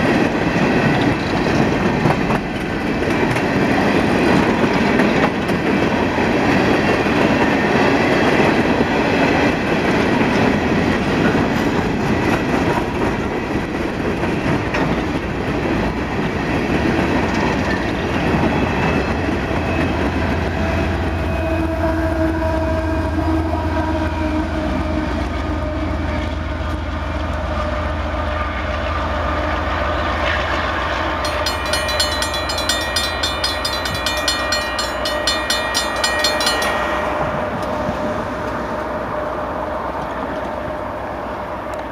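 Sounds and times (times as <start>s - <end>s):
train cars rattling over rails: 0.0s - 21.4s, 30.2s - 41.9s
diesel locomotive engine drone: 0.0s - 41.9s.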